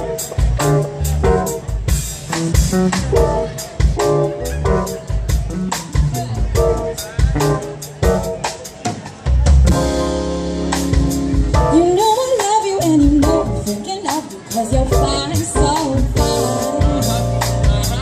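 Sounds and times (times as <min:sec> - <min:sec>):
bass: 0:00.0 - 0:18.0
drum kit beat: 0:00.0 - 0:18.0
keyboard chords: 0:00.0 - 0:18.0
vocals: 0:11.7 - 0:18.0.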